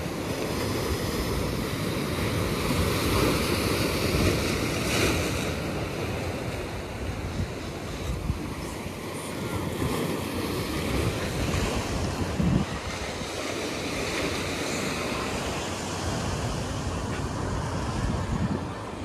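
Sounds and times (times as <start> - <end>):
ocean surf breaking on rocks: 0.0 - 19.0
wind buffeting microphone: 6.0 - 19.0.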